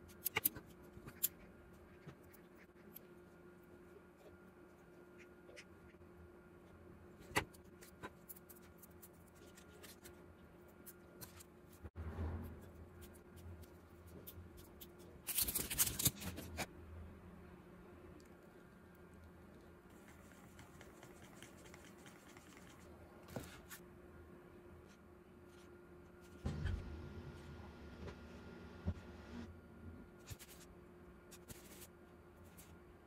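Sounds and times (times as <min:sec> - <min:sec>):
faint steady hum: 0:00.0 - 0:33.0.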